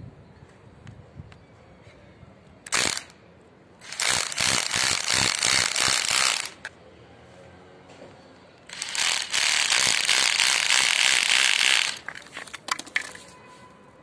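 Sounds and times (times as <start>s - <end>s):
hammer drill boring into wall: 2.7s - 3.1s, 3.8s - 6.6s, 8.7s - 12.2s.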